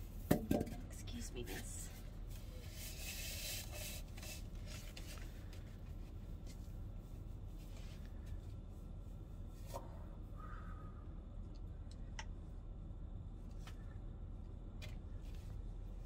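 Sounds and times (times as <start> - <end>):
wig rustling and rubbing: 1.4 - 9.7.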